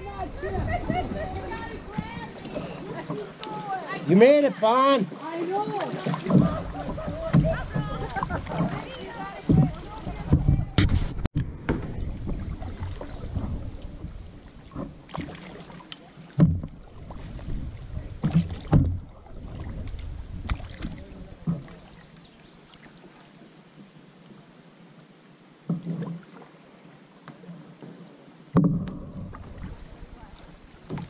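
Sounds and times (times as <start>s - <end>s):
paddle strokes splashing: 0.0s - 31.0s
dull thumps against hull: 6.1s - 15.3s, 16.4s - 16.8s, 18.2s - 21.8s.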